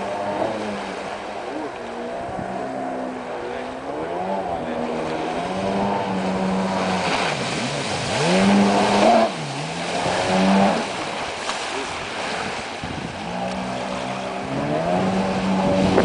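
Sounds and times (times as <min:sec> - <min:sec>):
jet ski engine revving: 0:00.0 - 0:16.0.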